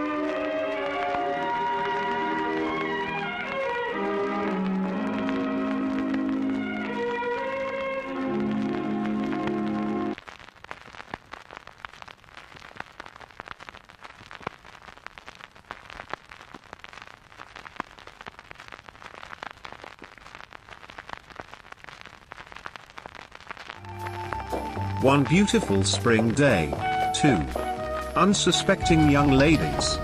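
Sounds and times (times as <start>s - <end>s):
film crackling and popping: 0.0s - 30.0s.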